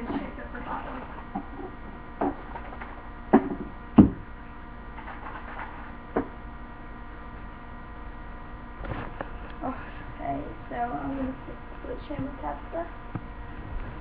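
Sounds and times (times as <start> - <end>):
low steady hum: 0.0 - 14.0
knocks and clunks: 2.2 - 4.3.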